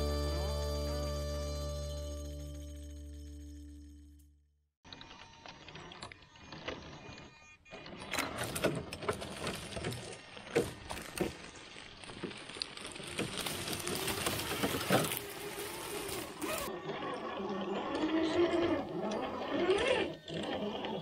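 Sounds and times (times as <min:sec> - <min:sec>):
rc car motor whine: 0:04.9 - 0:21.0
tyres crunching on gravel: 0:09.0 - 0:16.7.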